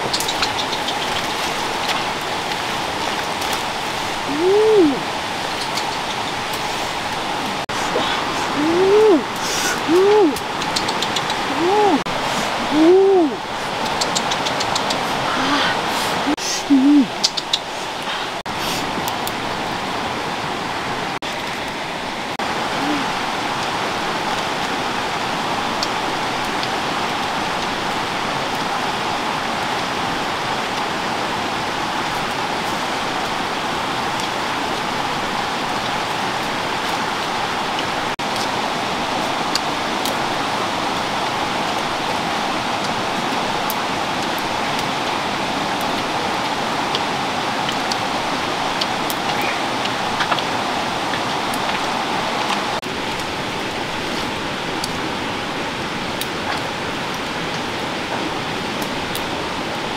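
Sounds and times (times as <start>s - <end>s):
faint clicks: 0.0s - 2.0s, 5.5s - 6.6s, 10.4s - 11.5s.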